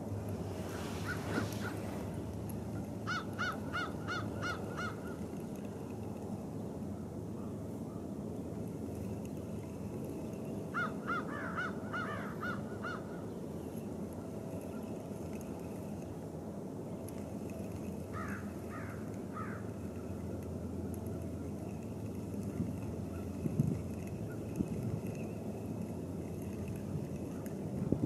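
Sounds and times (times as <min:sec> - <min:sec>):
low background noise: 0:00.0 - 0:28.0
bird calling: 0:02.8 - 0:05.3, 0:10.6 - 0:13.8, 0:18.1 - 0:19.8.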